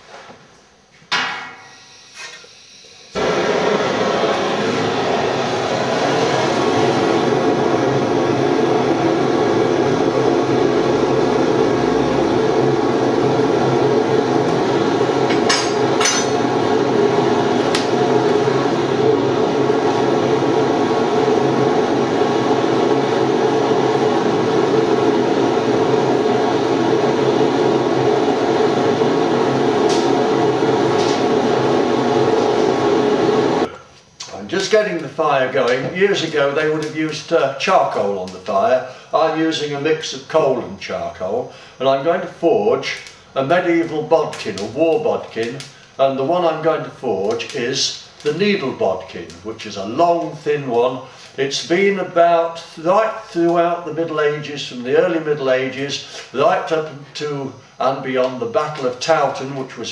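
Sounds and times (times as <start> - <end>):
blowtorch roaring: 1.4 - 59.8.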